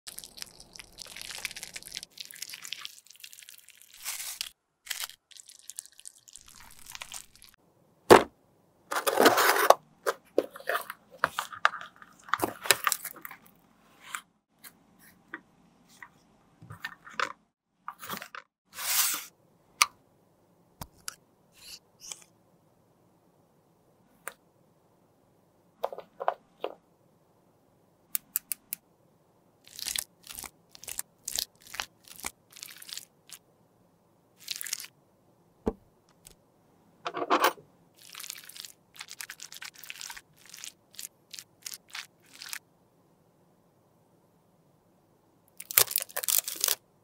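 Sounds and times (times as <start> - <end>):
crunching and crackling: 0.1 - 7.6, 29.7 - 33.4, 38.0 - 42.6, 45.6 - 46.8.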